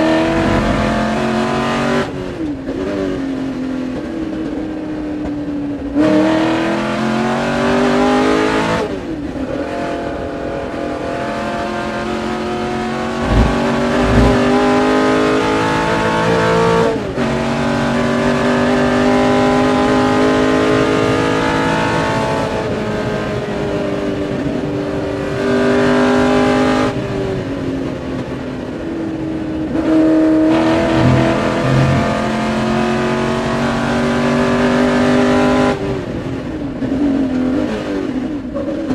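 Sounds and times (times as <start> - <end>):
race car engine revving: 0.0 - 2.1, 11.1 - 22.5, 30.0 - 35.8.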